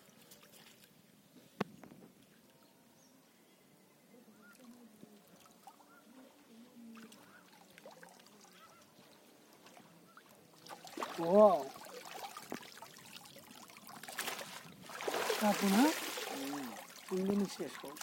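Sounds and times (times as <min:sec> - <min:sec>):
water sloshing and dripping: 0:04.5 - 0:18.0.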